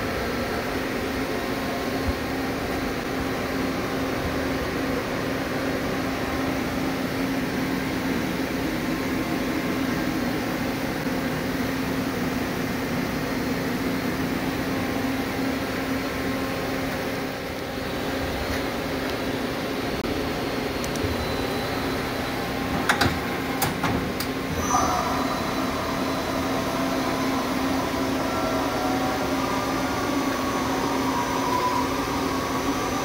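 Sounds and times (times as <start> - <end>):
lathe idling hum: 0.0 - 33.0.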